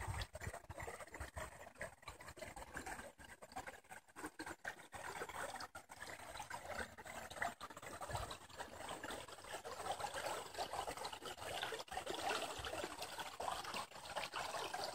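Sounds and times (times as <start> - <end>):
river water trickling over stones: 0.0 - 14.9.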